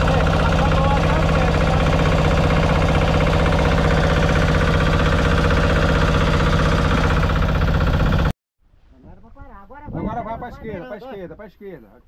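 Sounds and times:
boat engine running: 0.0 - 8.3.

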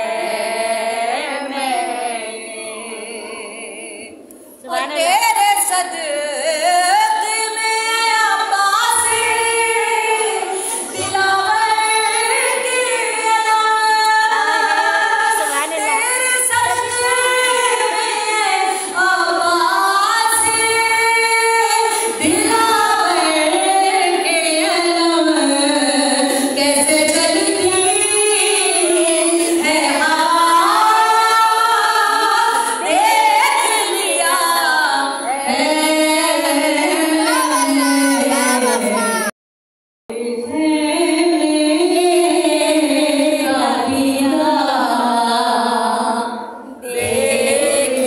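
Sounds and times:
woman singing into a microphone: 0.0 - 39.3, 40.1 - 48.0.

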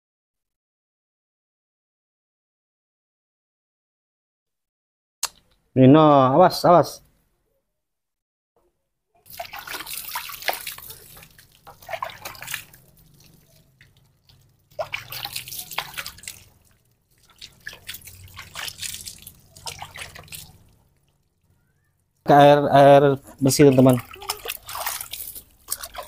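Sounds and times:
water splashing into plastic basin: 9.2 - 26.0.

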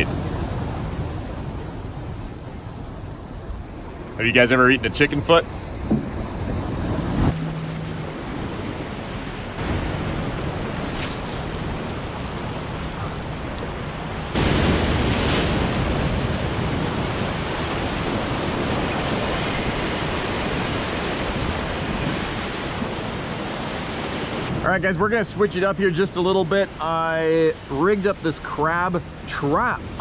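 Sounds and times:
surf washing against rocks: 0.0 - 7.4, 8.8 - 24.6.

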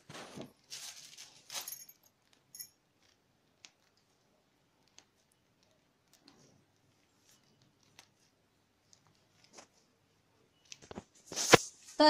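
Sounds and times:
plastic piping bag rustling: 0.0 - 2.0.

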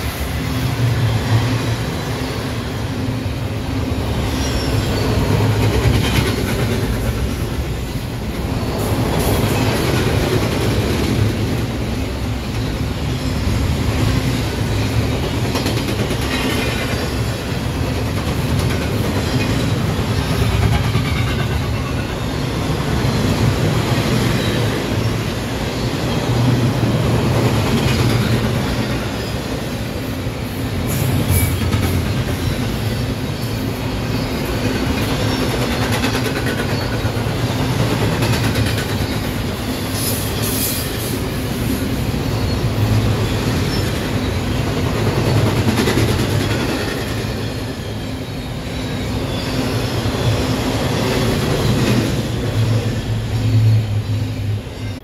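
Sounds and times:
freight train rumbling past: 0.0 - 55.0.

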